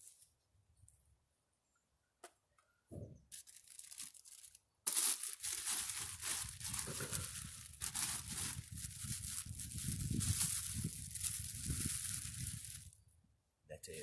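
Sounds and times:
plastic bags crinkling: 3.3s - 13.0s.

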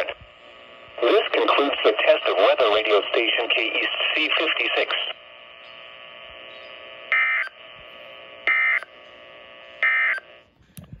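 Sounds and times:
radio hiss: 0.0s - 10.4s
data tone bursts: 6.5s - 7.6s, 8.5s - 8.9s.

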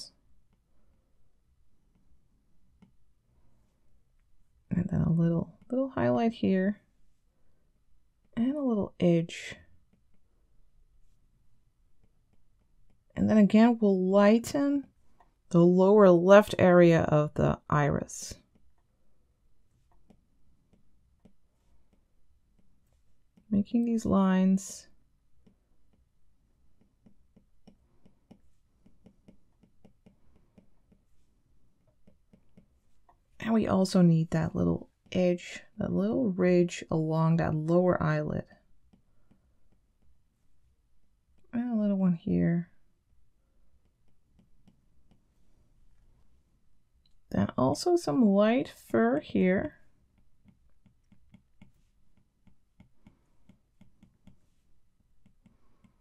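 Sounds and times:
stylus tapping glass screen: 26.8s - 31.2s.

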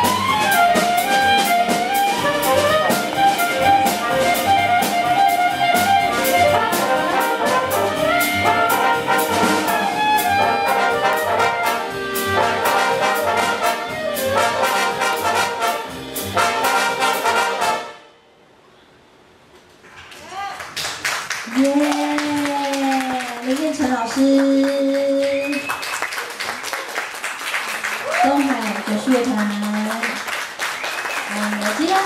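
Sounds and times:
walking bass: 0.0s - 17.6s
brass playing melody: 0.0s - 18.2s.

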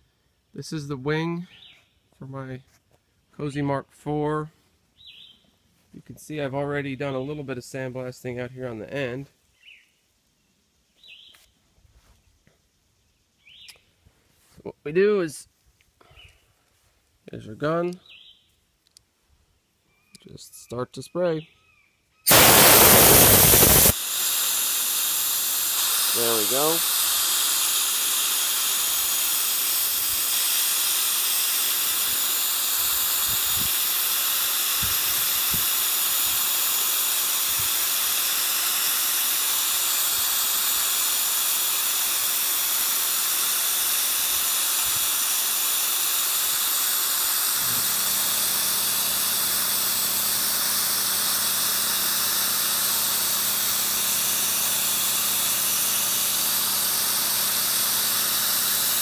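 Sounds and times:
abrasive blaster hissing: 22.3s - 59.0s
air compressor humming: 22.3s - 59.0s.

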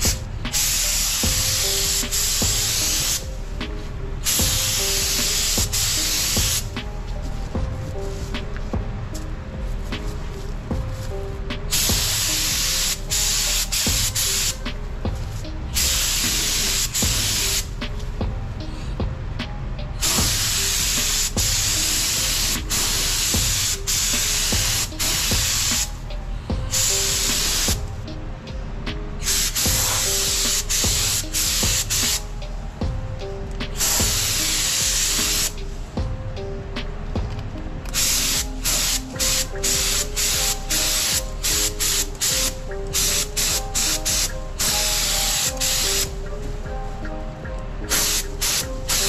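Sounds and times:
spray gun spraying: 0.0s - 3.6s, 4.2s - 6.8s, 11.0s - 14.6s, 15.3s - 17.8s, 20.0s - 26.0s, 26.7s - 27.8s, 29.2s - 32.3s, 33.7s - 35.7s, 37.9s - 46.2s, 47.9s - 49.0s.

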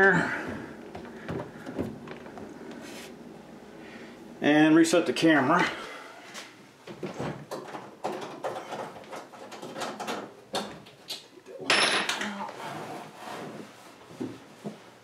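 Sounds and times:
microwave knocking and rattling: 0.0s - 2.5s, 6.9s - 10.9s.

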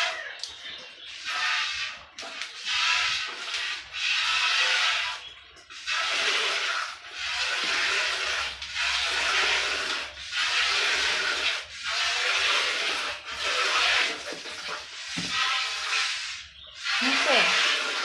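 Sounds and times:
milk squirting into metal pail: 0.0s - 18.0s.

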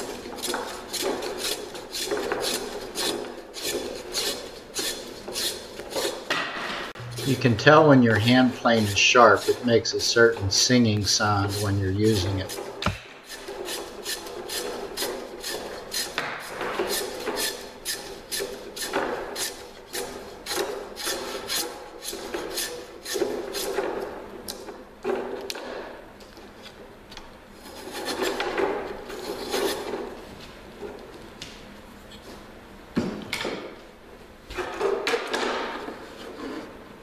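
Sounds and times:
block plane shaving wood: 0.0s - 6.3s, 7.0s - 23.9s, 27.6s - 30.0s.

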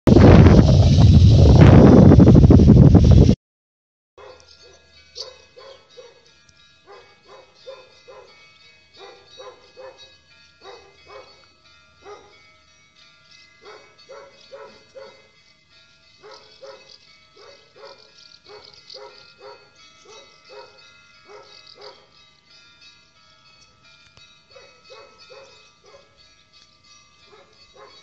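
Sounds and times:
dog barking: 4.2s - 6.3s, 6.9s - 8.4s, 9.0s - 11.4s, 12.0s - 12.4s, 13.6s - 15.3s, 16.2s - 22.1s, 24.5s - 26.2s, 27.3s - 28.0s
church bells ringing: 4.2s - 28.0s.

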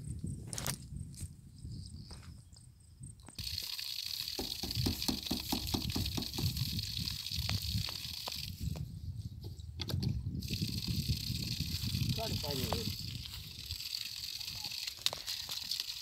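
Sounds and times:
water gushing from pipe: 3.4s - 8.7s, 10.4s - 16.0s
water splashing on ground: 12.0s - 16.0s.

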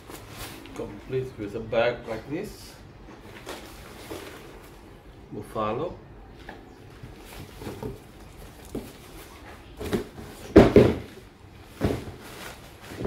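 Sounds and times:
bag rustling thumps: 9.8s - 13.0s.

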